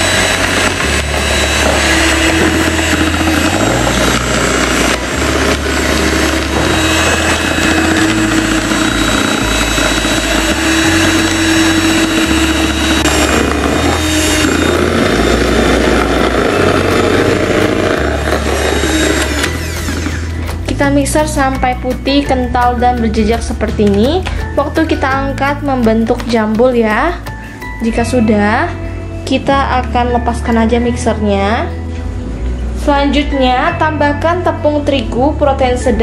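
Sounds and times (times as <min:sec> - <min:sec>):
electric hand mixer whine: 0:00.0 - 0:20.9
beaters whisking batter: 0:00.0 - 0:27.2.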